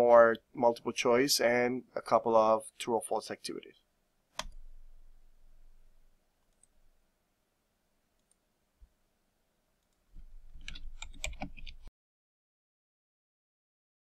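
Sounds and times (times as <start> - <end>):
computer mouse click: 4.4 - 4.7, 6.5 - 6.8, 8.2 - 8.4, 10.6 - 11.9
keyboard typing: 4.4 - 6.8, 10.2 - 11.9.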